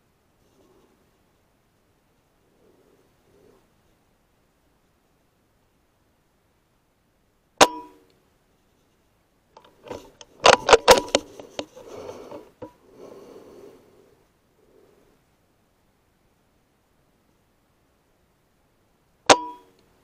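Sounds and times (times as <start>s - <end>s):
rifle lever clicking and rattling: 9.6s - 11.7s.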